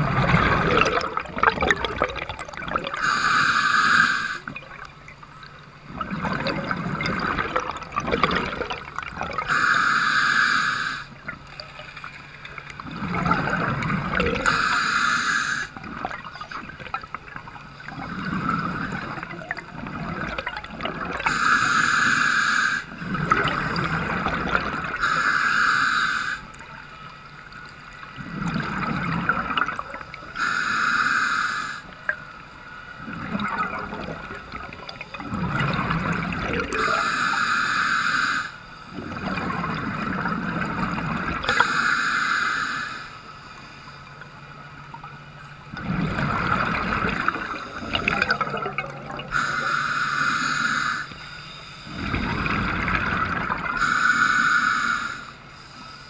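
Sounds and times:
gurgling exhaled bubbles: 0.0 - 3.4, 4.4 - 9.7, 11.2 - 14.8, 15.7 - 21.4, 22.9 - 25.2, 28.2 - 30.5, 33.0 - 37.1, 38.9 - 41.8, 45.7 - 49.8, 51.9 - 53.9
regulator hissing inhalation: 3.0 - 4.5, 9.5 - 11.2, 14.4 - 15.8, 21.3 - 23.0, 25.0 - 26.5, 30.4 - 32.0, 36.8 - 38.6, 41.5 - 43.2, 49.3 - 52.2, 53.8 - 56.0.

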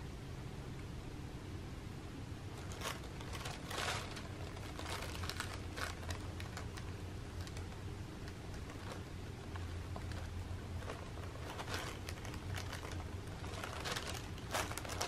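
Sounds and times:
tissue paper rustling: 2.5 - 15.0.

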